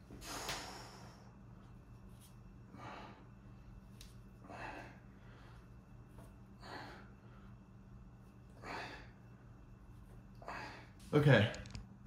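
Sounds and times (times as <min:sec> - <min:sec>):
low steady hum: 0:00.0 - 0:12.0
man breathing forcefully: 0:00.1 - 0:01.4, 0:02.7 - 0:03.4, 0:04.4 - 0:05.8, 0:06.5 - 0:07.7, 0:08.5 - 0:09.2.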